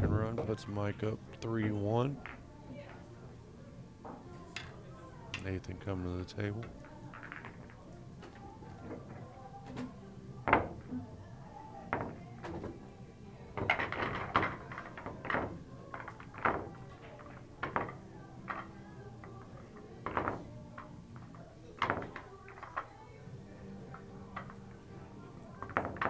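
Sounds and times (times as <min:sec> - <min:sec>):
pool balls clacking: 0:01.6 - 0:03.0, 0:06.6 - 0:10.9, 0:11.8 - 0:12.8, 0:13.5 - 0:23.0, 0:23.8 - 0:26.0.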